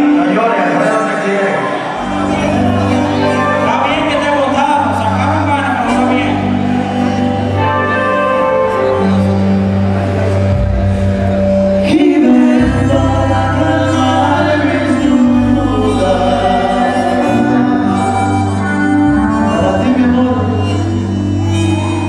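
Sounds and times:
live band with singer: 0.0 - 22.0
bass line: 1.7 - 22.0.

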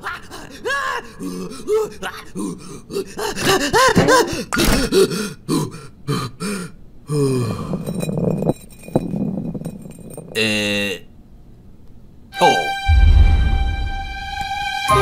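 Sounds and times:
cartoon grunts and gasps: 0.0 - 7.8.

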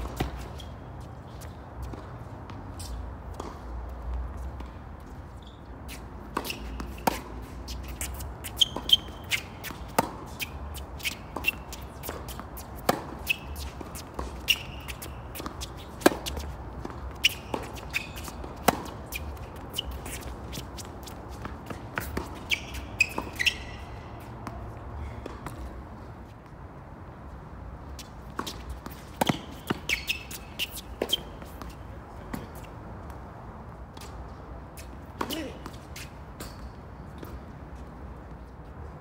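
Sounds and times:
tennis ball bouncing: 0.0 - 1.0, 5.9 - 25.8, 28.0 - 33.2, 33.9 - 37.4
shoes squeaking on court: 0.0 - 26.6, 27.8 - 38.9
racket striking tennis ball: 6.0 - 24.6, 28.3 - 33.2.

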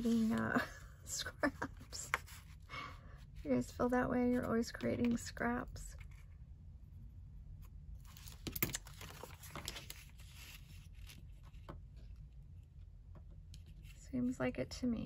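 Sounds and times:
paper rustling and crinkling: 0.0 - 2.7, 8.0 - 12.2.

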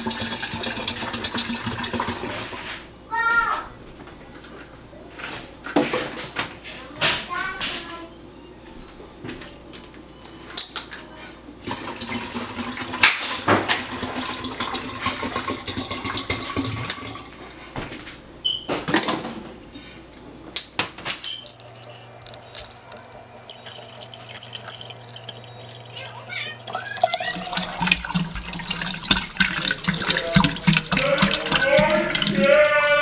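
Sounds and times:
plastic bottles clicking: 21.3 - 27.8
water pouring into plastic jug: 21.4 - 32.5.

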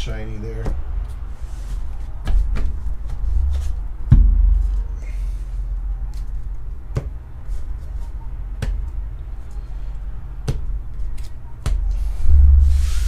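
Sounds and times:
low rumble of handling: 0.0 - 13.0
cards tapping and knocking: 10.4 - 11.9.

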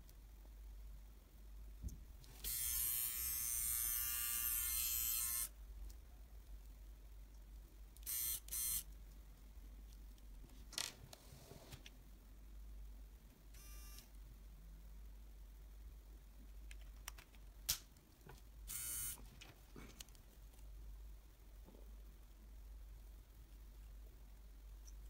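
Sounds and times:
trimmer motor buzzing: 2.4 - 5.5, 18.7 - 19.2.

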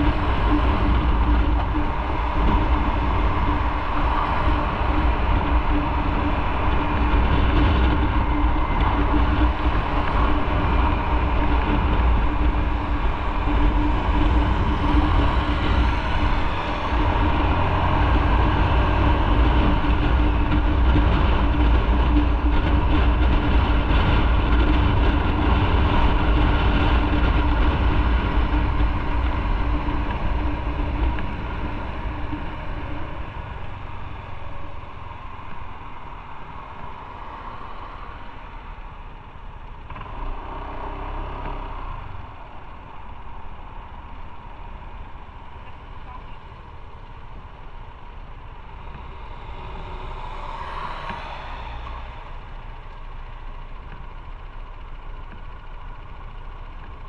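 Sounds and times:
motorcycle engine rumble: 0.0 - 57.0
wind and road noise: 0.0 - 57.0.

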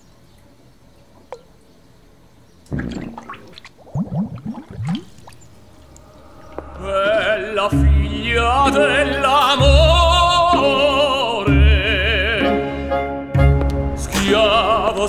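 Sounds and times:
operatic singing with vibrato: 6.2 - 13.0, 14.0 - 15.0.

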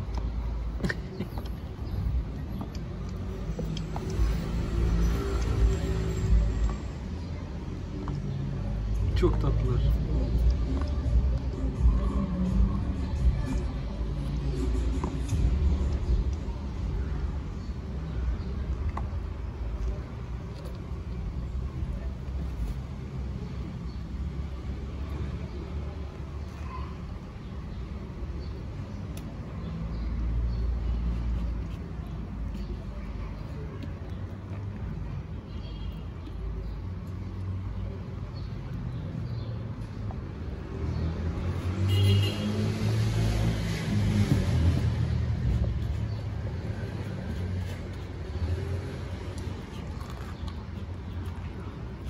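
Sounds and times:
distant street traffic rumble: 0.0 - 52.0
vehicle passing: 40.8 - 51.9.

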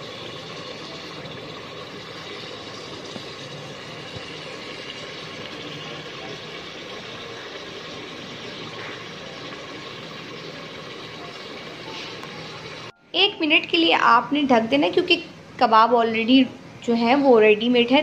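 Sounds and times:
gravy simmering in a pot: 0.0 - 12.9
steady hiss and hum: 0.0 - 18.0.

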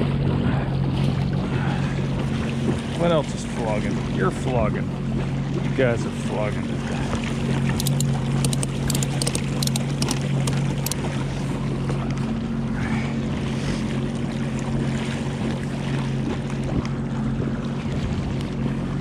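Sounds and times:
watercraft engine idling: 0.0 - 19.0
strap buckle clicking: 7.8 - 11.0.

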